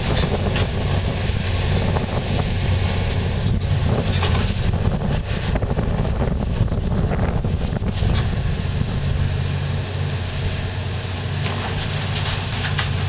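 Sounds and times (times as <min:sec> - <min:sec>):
excavator diesel engine droning: 0:00.0 - 0:13.0
demolition clatters: 0:03.4 - 0:05.6, 0:11.4 - 0:13.0.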